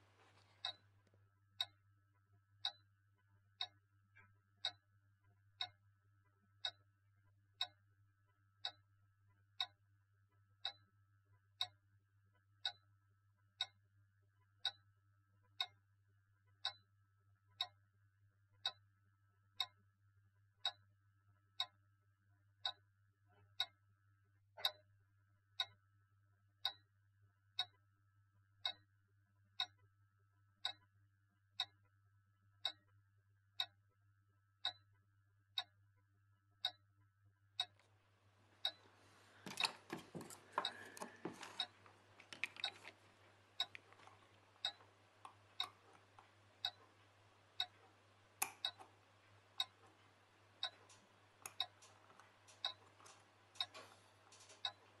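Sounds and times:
sharp ticking: 38.6 - 55.0.

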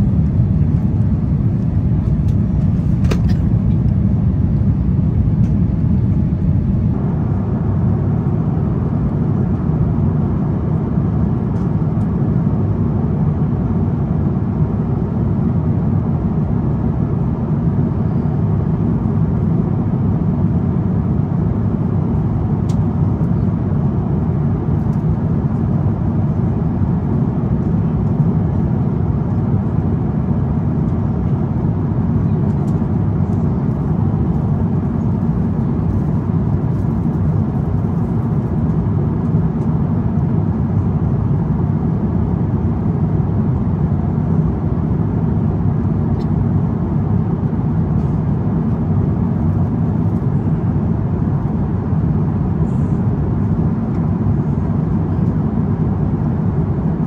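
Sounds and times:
aircraft cabin engine rumble: 0.0 - 57.0.

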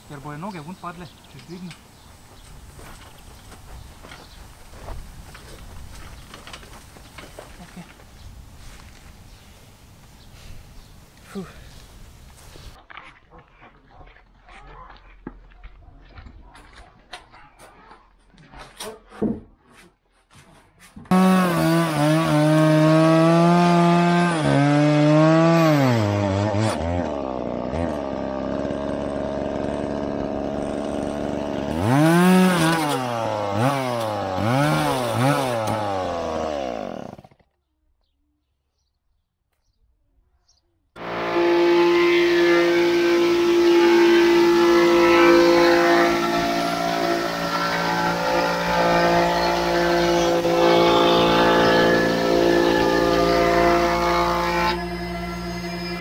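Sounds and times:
chainsaw cutting wood: 21.1 - 37.6, 41.0 - 56.0.

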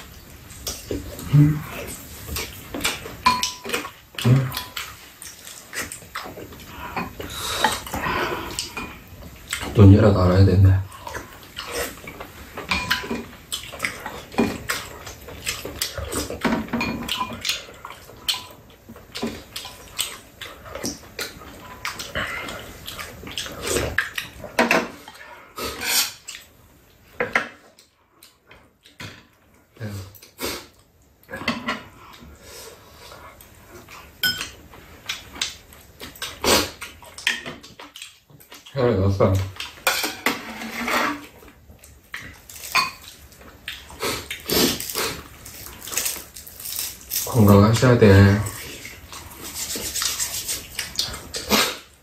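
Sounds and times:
mouth noises of eating: 0.0 - 9.8, 17.3 - 26.5, 34.8 - 39.8, 41.2 - 52.0
slurping and chewing: 0.0 - 9.8, 10.9 - 38.7, 39.4 - 47.5, 48.2 - 52.0
utensils clinking on ceramic bowls: 3.2 - 3.9, 12.7 - 13.2, 34.2 - 34.6.

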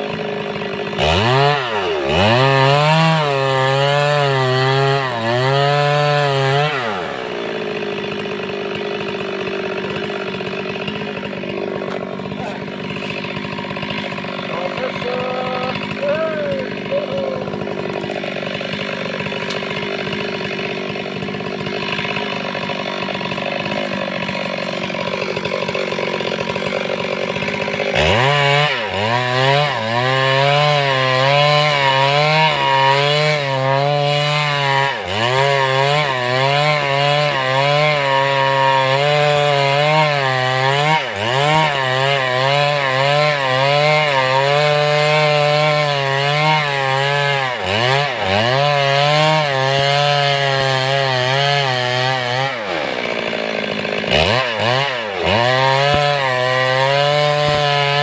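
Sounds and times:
chainsaw cutting log: 0.0 - 58.0.

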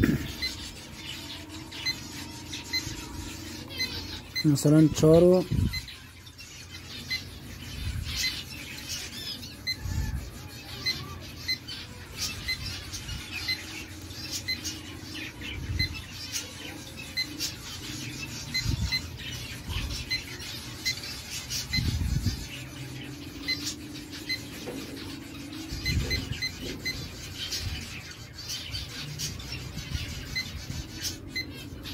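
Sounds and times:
cage birds chirping and squawking: 0.0 - 31.9.

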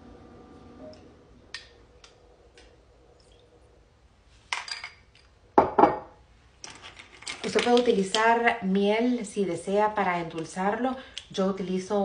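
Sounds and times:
kitchenware clattering: 4.6 - 7.8
kitchenware clinking and knocking: 5.6 - 6.2.

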